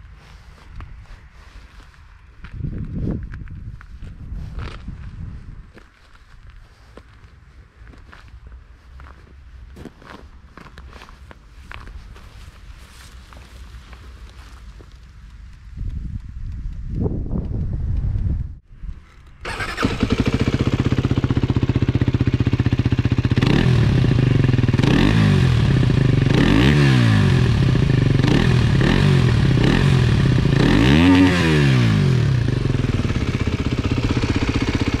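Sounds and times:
motorcycle engine idling and revving: 8.2s - 35.0s.

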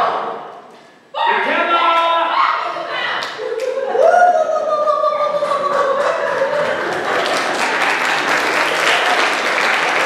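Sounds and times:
audience applause: 5.4s - 10.0s.

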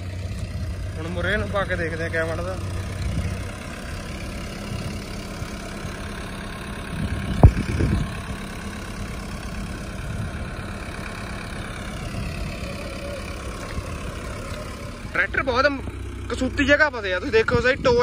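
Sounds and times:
tractor diesel engine idling: 0.0s - 18.0s
sharp thump: 7.4s - 7.9s.

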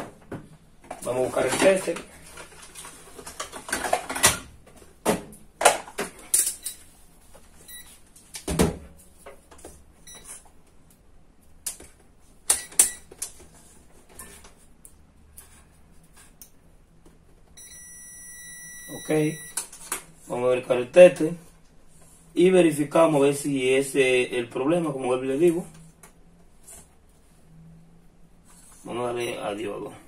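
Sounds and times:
multimeter beep: 7.7s - 8.0s, 10.0s - 10.3s, 12.5s - 13.1s, 17.6s - 19.6s, 29.2s - 29.6s.

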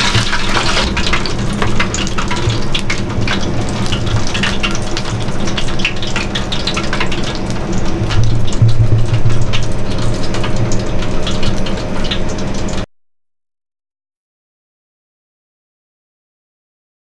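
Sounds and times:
fried chicken sizzling: 0.0s - 12.9s
hot oil crackling and popping: 0.0s - 12.9s
steady low hum: 0.0s - 12.9s.

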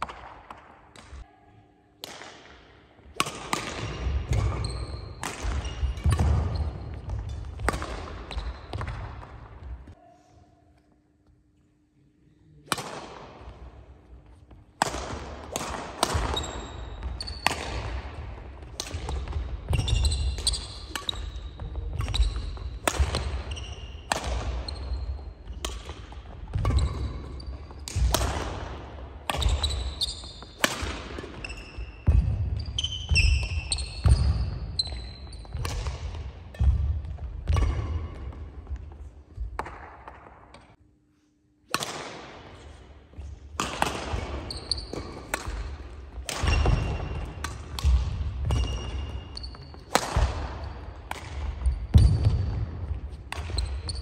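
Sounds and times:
racket striking shuttlecock: 2.0s - 9.2s, 12.7s - 13.7s, 14.8s - 38.9s, 41.7s - 42.4s, 43.5s - 54.0s
shoe squeaks: 4.3s - 7.4s, 8.3s - 8.8s, 16.3s - 17.5s, 19.7s - 25.7s, 29.4s - 30.6s, 31.2s - 35.6s, 44.4s - 45.2s, 48.4s - 49.9s, 53.5s - 54.0s.

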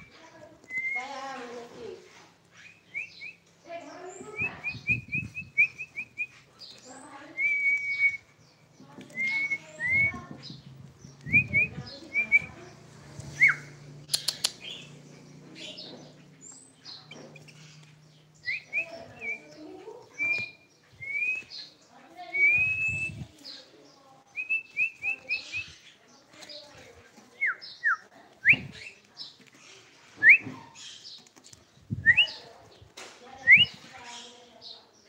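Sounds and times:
bird chirping and whistling: 0.0s - 1.2s, 2.5s - 3.4s, 4.2s - 8.4s, 9.1s - 10.6s, 11.2s - 12.6s, 13.2s - 15.0s, 17.4s - 23.3s, 24.3s - 25.9s, 27.4s - 28.9s, 30.2s - 30.9s, 31.9s - 32.5s, 33.4s - 34.0s
sharp clicks: 14.1s - 14.9s.

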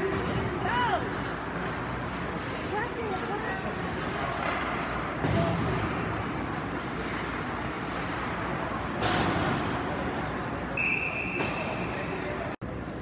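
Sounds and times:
referee's whistle blast: 10.8s - 11.8s.

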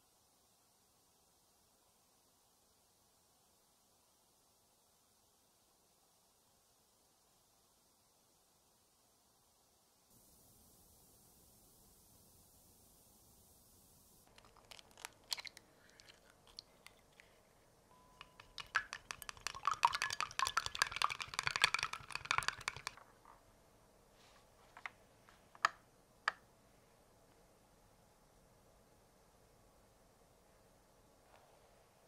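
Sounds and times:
chopsticks beating egg in glass bowl: 18.1s - 23.0s.

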